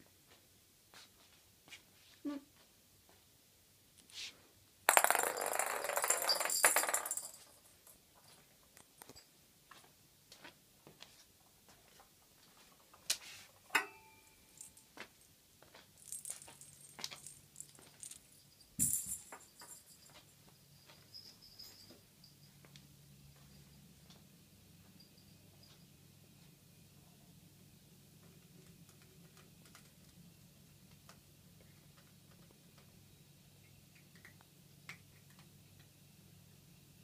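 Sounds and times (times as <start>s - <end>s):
loud jingling rattle: 4.9s - 7.6s.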